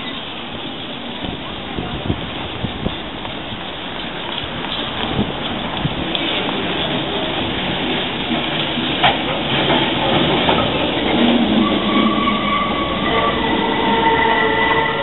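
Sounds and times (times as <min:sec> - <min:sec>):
tram wheels squealing on rails: 0:00.0 - 0:01.3, 0:02.8 - 0:15.0
tram running gear rumble: 0:00.0 - 0:15.0.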